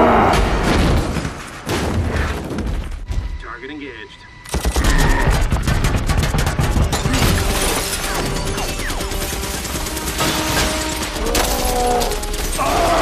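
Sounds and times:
film music score: 0.0s - 13.0s
rapid gunfire: 4.5s - 11.4s.

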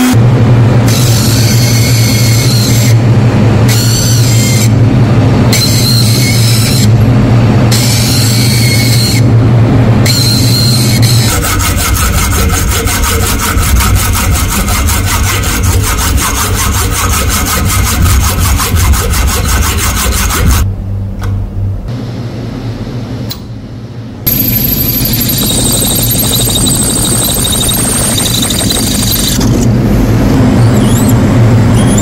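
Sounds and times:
sawing strokes: 10.1s - 20.6s
tool cutting wood: 10.2s - 20.6s
motor hum: 24.2s - 32.0s.

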